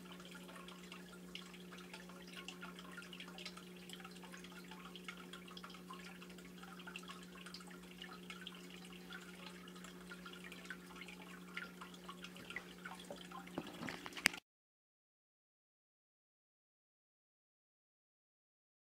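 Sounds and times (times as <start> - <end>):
aquarium water trickling: 0.0 - 14.4.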